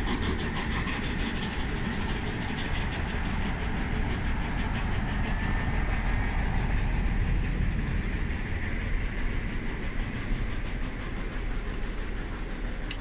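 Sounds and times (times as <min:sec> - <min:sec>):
diesel locomotive engine rumble: 0:00.0 - 0:13.0
train running on rails: 0:00.0 - 0:13.0.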